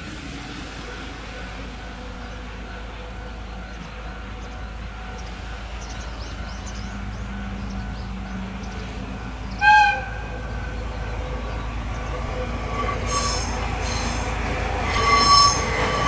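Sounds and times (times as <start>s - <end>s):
diesel locomotive engine rumble: 0.0s - 16.0s
locomotive horn blast: 9.5s - 10.7s, 12.2s - 16.0s.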